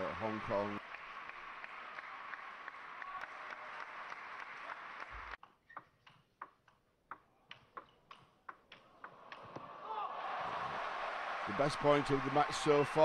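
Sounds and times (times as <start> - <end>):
crowd applauding: 0.0 - 5.4, 9.2 - 13.0
table tennis ball clicking: 5.4 - 9.6.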